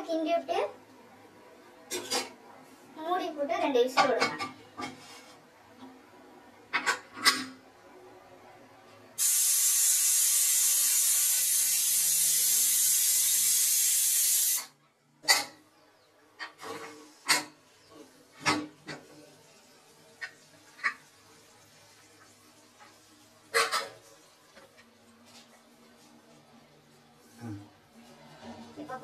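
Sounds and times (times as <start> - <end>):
pressure cooker steam hiss: 9.2 - 14.7.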